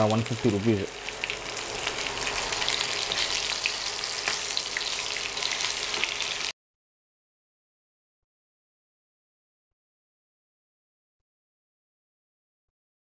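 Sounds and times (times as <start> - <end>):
chicken sizzling in oil: 0.0 - 6.6.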